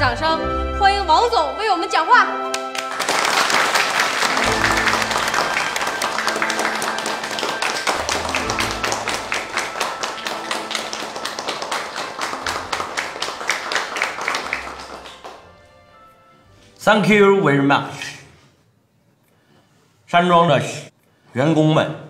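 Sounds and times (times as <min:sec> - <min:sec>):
background music: 0:00.0 - 0:18.4
people applauding: 0:02.5 - 0:15.7.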